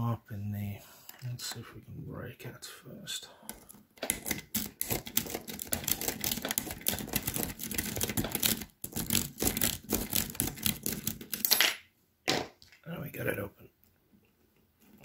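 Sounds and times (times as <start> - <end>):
lock pick clicking and scraping: 3.5 - 11.6.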